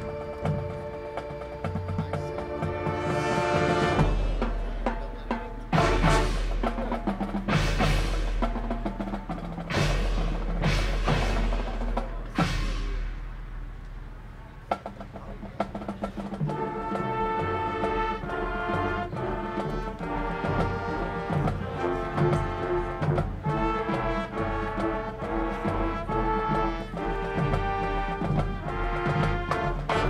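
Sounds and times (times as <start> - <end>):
brass and winds playing chords: 0.0 - 30.0
drums: 0.0 - 30.0
percussion hits: 1.4 - 13.7.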